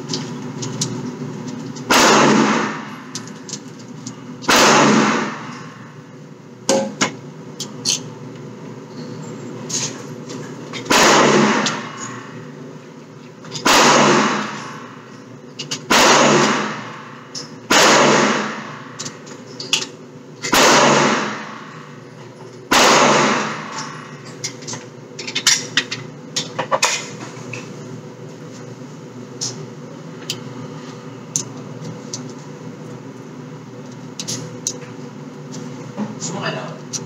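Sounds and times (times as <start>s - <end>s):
ventilation hum: 0.0s - 37.0s
gunshots echoing indoors: 1.9s - 3.2s, 4.4s - 6.0s, 10.9s - 12.4s, 13.6s - 15.0s, 15.9s - 19.1s, 20.4s - 22.0s, 22.7s - 24.2s.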